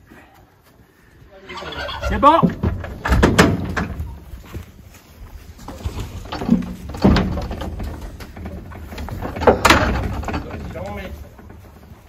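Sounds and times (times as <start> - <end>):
metal trailer door clanking: 1.8 - 4.3, 5.7 - 12.0.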